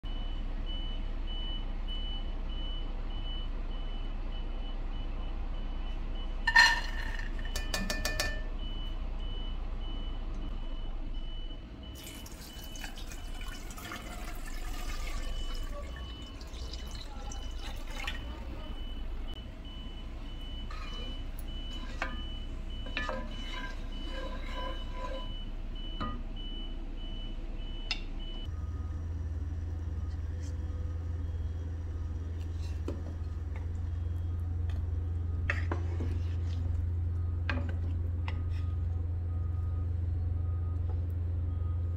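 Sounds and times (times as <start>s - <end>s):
water pouring and splashing: 12.0s - 18.3s.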